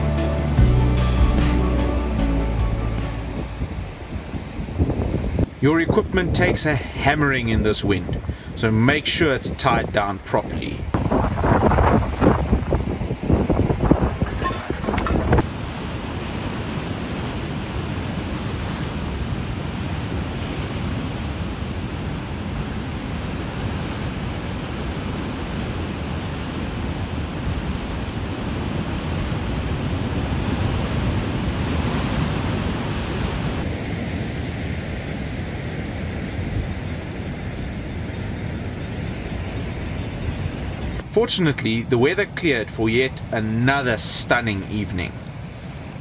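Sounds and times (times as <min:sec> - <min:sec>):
strong wind: 0:01.3 - 0:46.0
surf breaking over rocks: 0:41.1 - 0:46.0.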